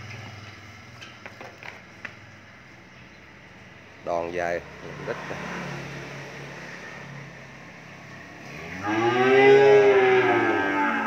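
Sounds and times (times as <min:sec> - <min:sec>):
cow mooing: 0:08.6 - 0:11.0.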